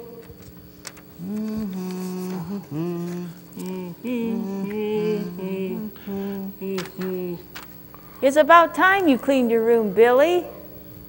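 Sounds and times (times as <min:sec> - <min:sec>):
person humming: 0:01.1 - 0:07.7.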